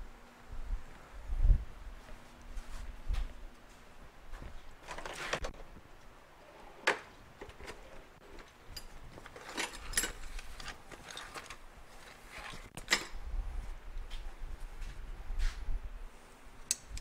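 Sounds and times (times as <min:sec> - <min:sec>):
tools and metal parts clicking: 0:07.4 - 0:11.6.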